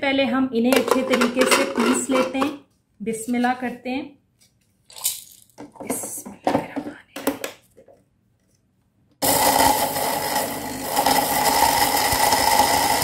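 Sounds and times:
electric spice grinder whining: 9.2s - 13.0s.

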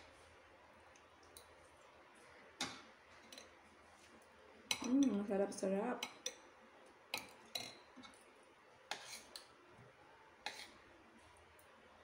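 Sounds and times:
cutlery clinking on plates: 2.6s - 3.6s, 4.7s - 5.2s, 7.1s - 8.2s, 8.9s - 9.5s.

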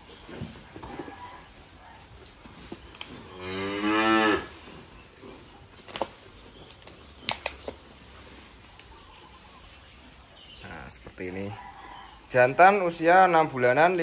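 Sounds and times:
cow mooing: 3.3s - 4.5s.

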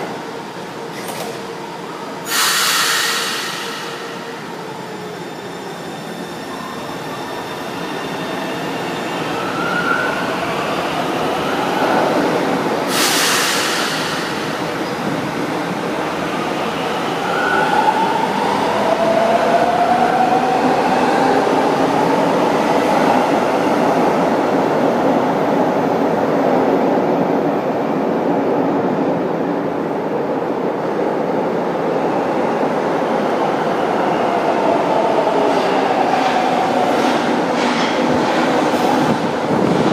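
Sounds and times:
train passing: 0.0s - 27.2s
rail running noise: 0.0s - 39.9s
loud hiss: 2.3s - 4.4s, 12.9s - 14.6s.

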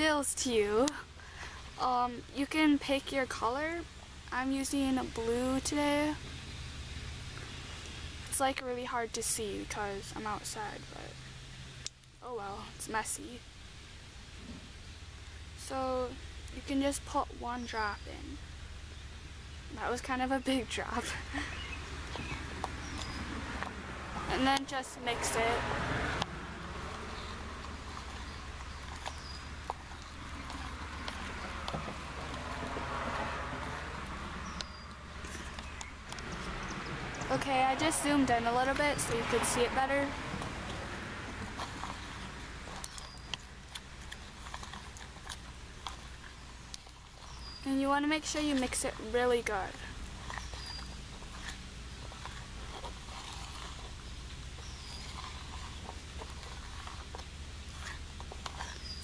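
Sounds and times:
street traffic hum: 0.0s - 59.0s
car passing with tyre hiss: 0.9s - 1.8s, 6.1s - 11.9s, 21.1s - 47.6s
spoon stirring thick goop: 26.0s - 47.7s, 48.3s - 59.0s.

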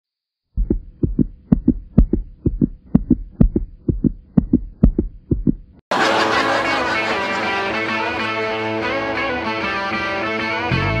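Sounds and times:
heartbeat thuds: 0.5s - 5.8s.

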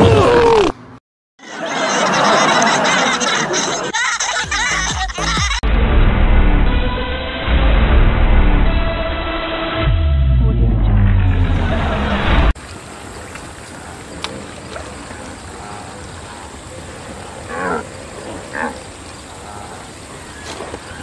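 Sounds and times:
bass-heavy music sting: 5.2s - 12.6s
ambience hiss: 12.6s - 21.0s
short grunting calls: 19.4s - 19.9s.

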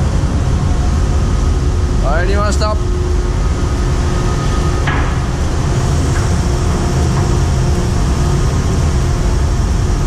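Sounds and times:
ship machinery rumbling: 0.0s - 10.0s.

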